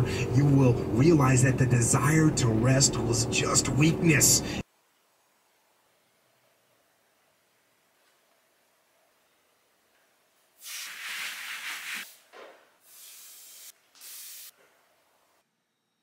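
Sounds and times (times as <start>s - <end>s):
loud hissing bursts: 10.6s - 14.6s.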